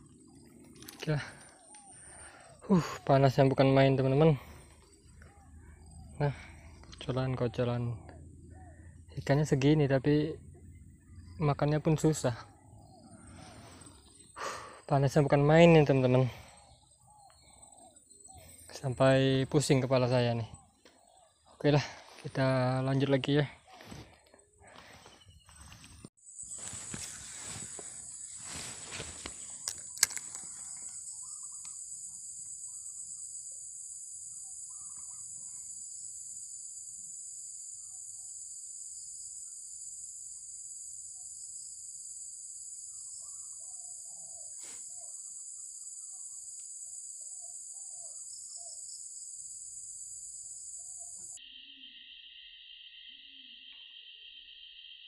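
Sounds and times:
faint bird chirps: 0.0s - 55.0s
insects buzzing: 0.0s - 55.0s
rustling handling noise: 24.8s - 30.8s.

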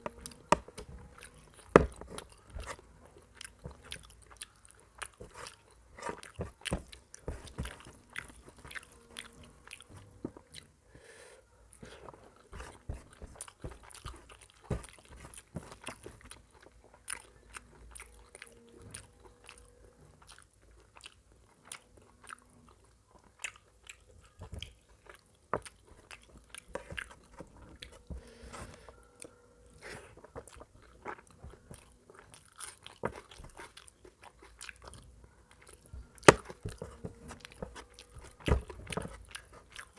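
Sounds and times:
person chewing with wet mouth smacks: 0.0s - 10.7s, 12.4s - 19.6s, 30.2s - 39.9s.

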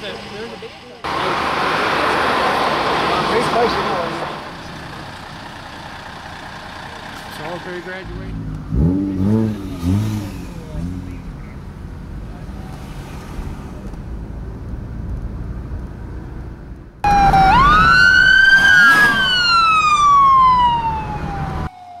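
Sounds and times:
car road and engine rumble: 0.0s - 21.8s
emergency vehicle siren: 17.0s - 22.0s.

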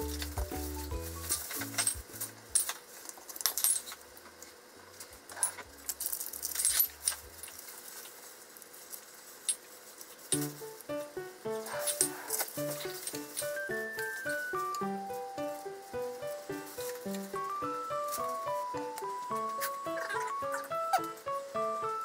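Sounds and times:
background music bass: 0.0s - 2.6s.

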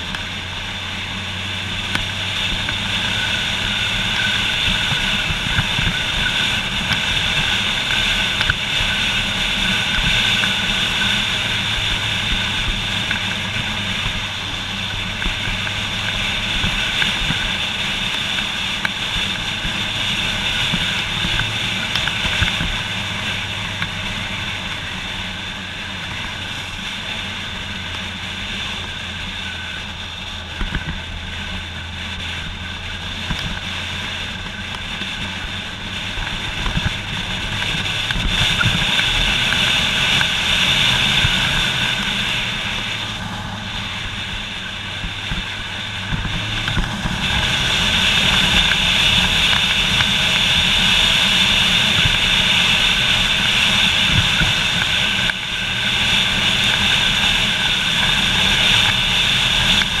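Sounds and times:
motorcycle engine running: 0.0s - 60.0s
wind rushing over camera: 0.0s - 60.0s.

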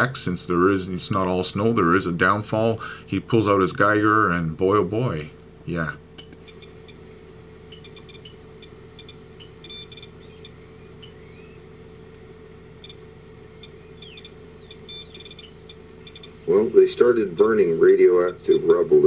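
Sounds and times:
steady low hum: 0.0s - 19.0s
short electronic beeps: 7.7s - 11.5s, 12.8s - 13.0s, 13.6s - 16.6s, 18.2s - 18.8s.

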